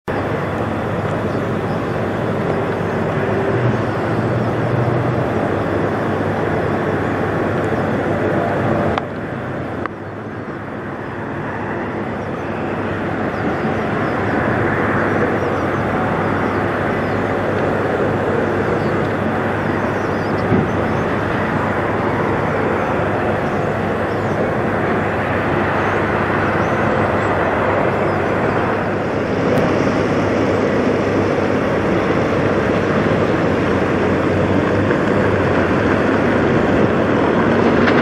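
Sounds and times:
diesel truck engine running: 0.1s - 11.0s.

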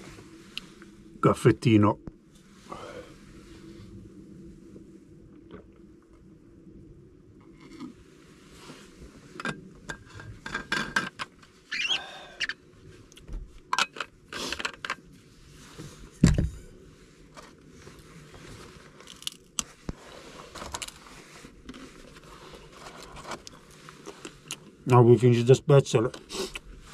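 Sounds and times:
short squeak: 11.7s - 12.5s
heavy thump: 16.2s - 16.6s.

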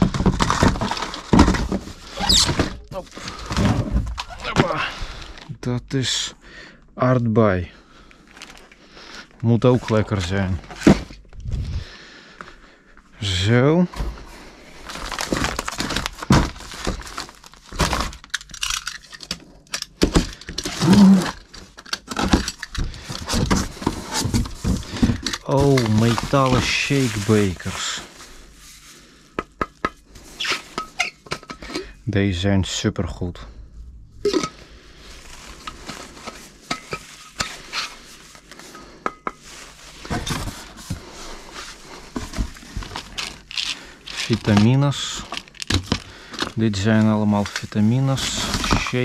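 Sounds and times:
boxes knocking and rustling: 0.0s - 5.1s, 9.5s - 11.4s, 13.4s - 18.4s, 19.8s - 28.3s, 29.3s - 32.0s, 34.2s - 49.0s.

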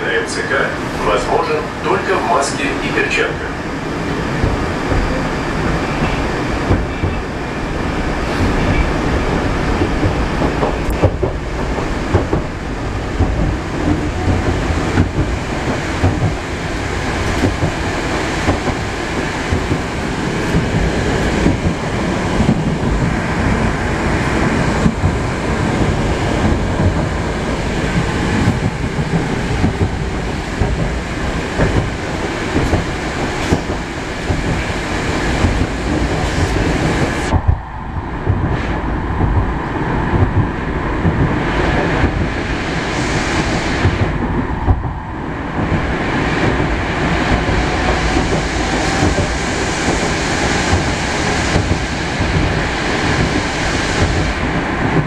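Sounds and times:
wheels rumbling on rails: 0.0s - 55.0s.

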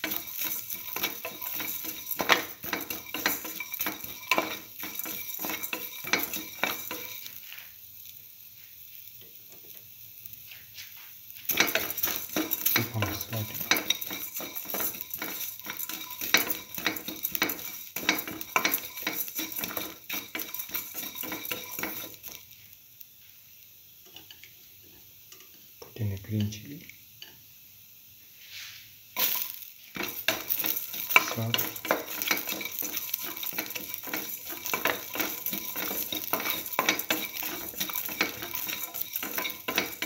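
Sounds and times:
utensil scraping a metal pan: 0.0s - 7.5s, 11.5s - 22.4s, 28.5s - 40.0s
faint sizzle of frying oil: 0.0s - 40.0s.

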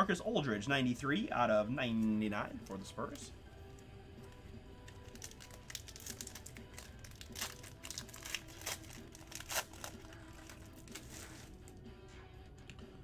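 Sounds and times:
foil wrapper tearing and crinkling: 4.9s - 11.6s.

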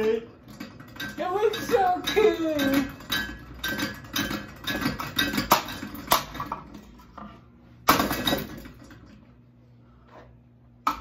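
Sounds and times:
ceiling fan clattering: 0.0s - 11.0s.

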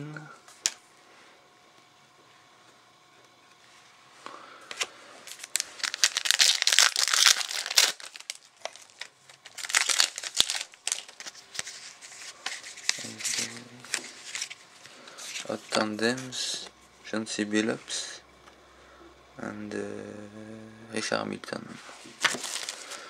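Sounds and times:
foil wrapper crinkling and tearing: 4.8s - 15.9s, 22.1s - 23.0s.

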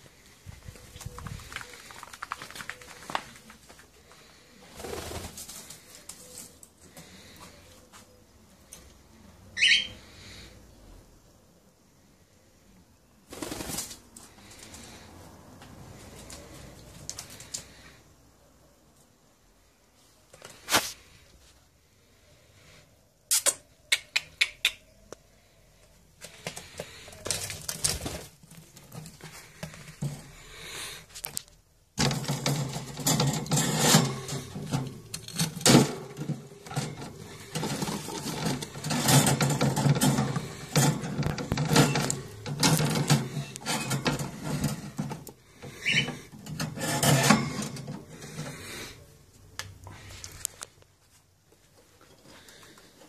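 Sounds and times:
bird cracking seeds: 1.1s - 4.3s.

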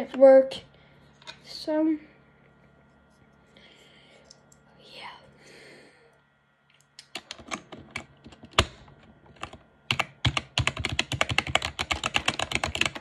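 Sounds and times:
mechanical keyboard typing: 7.0s - 13.0s.

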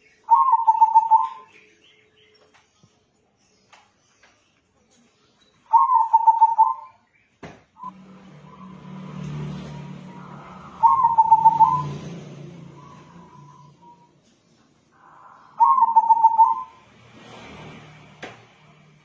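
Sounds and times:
dove cooing: 0.3s - 1.5s, 5.7s - 7.0s, 7.8s - 14.1s, 15.0s - 16.8s.

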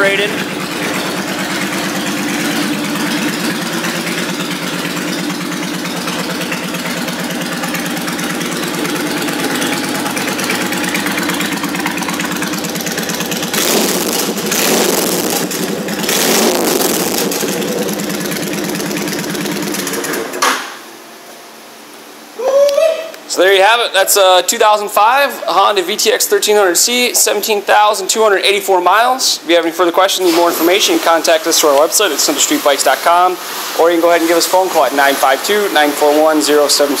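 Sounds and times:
motorcycle engine idling: 0.0s - 20.4s
motorcycle engine revving: 0.0s - 20.4s.

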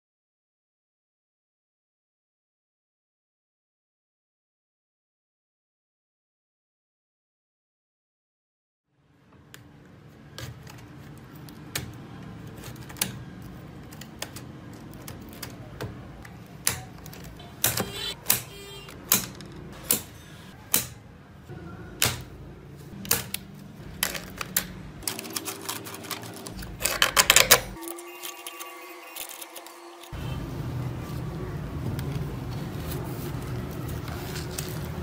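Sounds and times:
pliers snipping wire: 16.5s - 21.0s, 23.0s - 30.1s.

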